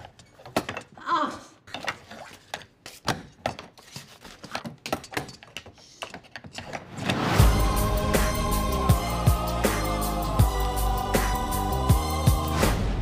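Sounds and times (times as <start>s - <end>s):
loud music: 7.2s - 13.0s.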